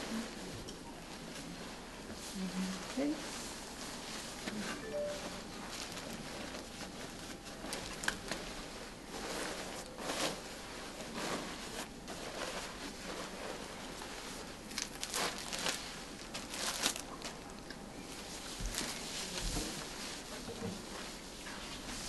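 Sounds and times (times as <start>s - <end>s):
protective coverall crinkling: 12.2s - 20.2s.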